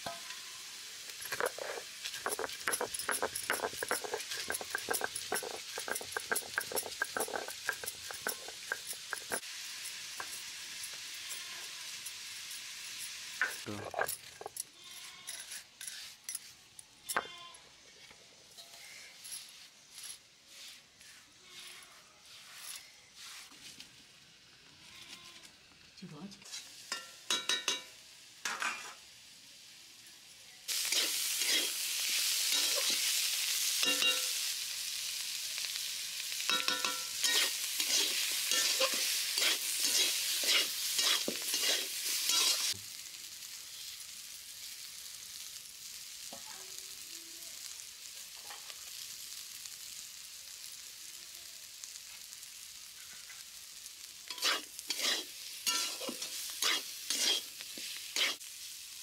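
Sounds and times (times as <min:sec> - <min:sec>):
vegetables sizzling in oil: 0:00.0 - 0:59.0
steel plate clinking: 0:01.2 - 0:14.7, 0:33.8 - 0:34.4, 0:36.5 - 0:42.7, 0:55.6 - 0:57.4
metal spatula scraping pan: 0:01.2 - 0:16.5, 0:30.7 - 0:33.2, 0:33.8 - 0:34.4, 0:36.4 - 0:42.8, 0:54.3 - 0:58.5.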